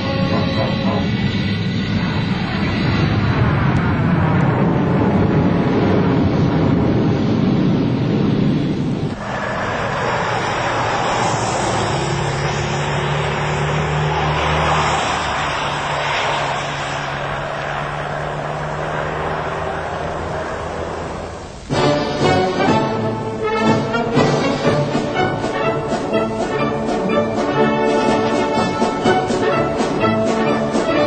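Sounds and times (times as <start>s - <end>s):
buses driving by: 0.0s - 31.0s
jet airliner taking off: 0.0s - 31.0s.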